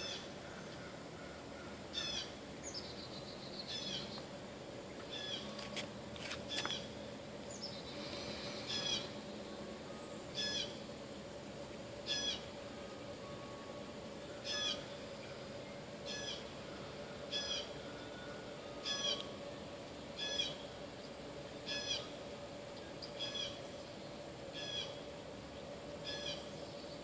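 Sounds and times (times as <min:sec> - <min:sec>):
bird calling: 0:00.0 - 0:04.2, 0:05.0 - 0:05.6, 0:06.5 - 0:09.2, 0:10.3 - 0:10.8, 0:12.0 - 0:12.6, 0:14.4 - 0:19.4, 0:20.2 - 0:20.7, 0:21.6 - 0:22.2, 0:23.0 - 0:23.7, 0:24.5 - 0:25.0, 0:26.0 - 0:26.6
faint hum: 0:00.0 - 0:27.0.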